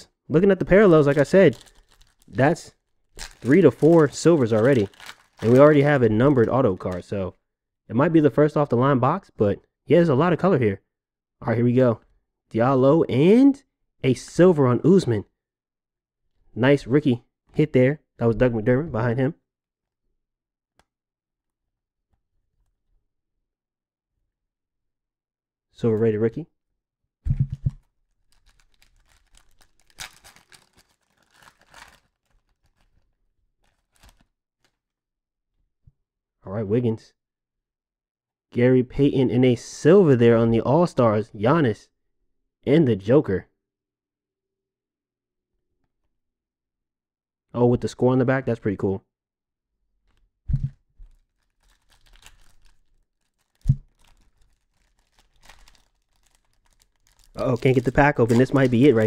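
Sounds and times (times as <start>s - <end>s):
foil wrapper crinkling and tearing: 0.7s - 7.1s, 27.7s - 34.8s, 51.0s - 59.0s
cards scraping: 57.6s - 59.0s.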